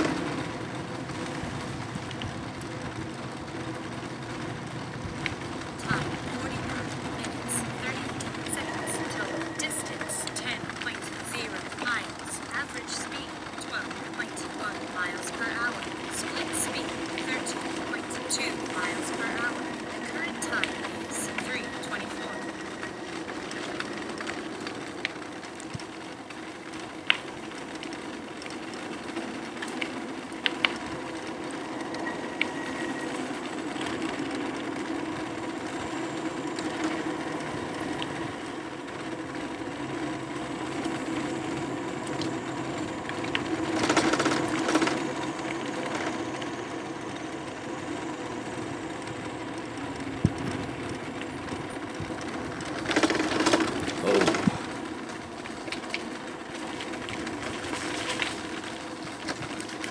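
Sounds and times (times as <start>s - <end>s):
rush of noise: 0.0s - 55.5s
sharp clicks and rattles: 33.4s - 47.2s, 48.6s - 59.9s.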